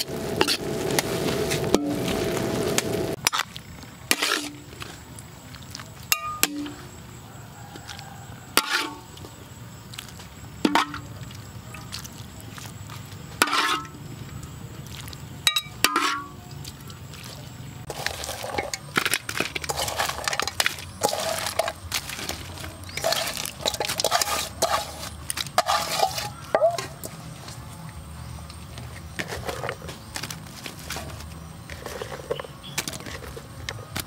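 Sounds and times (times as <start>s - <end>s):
food clattering into metal wok: 17.9s - 27.0s.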